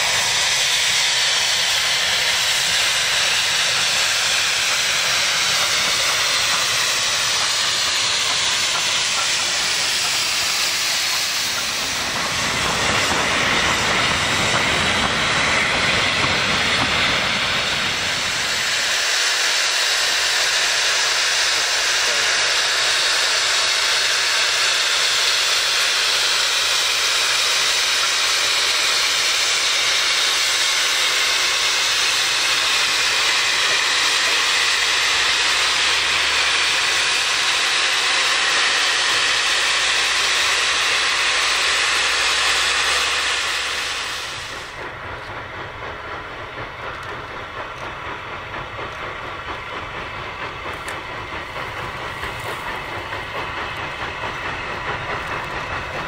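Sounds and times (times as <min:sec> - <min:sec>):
steam locomotive blowing off steam: 0:00.0 - 0:56.0
train running rumble: 0:00.0 - 0:56.0.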